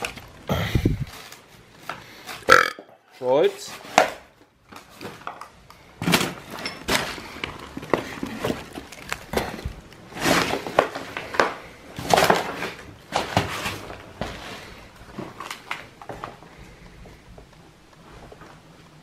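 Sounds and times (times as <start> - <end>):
debris clattering underfoot: 6.0 - 16.4.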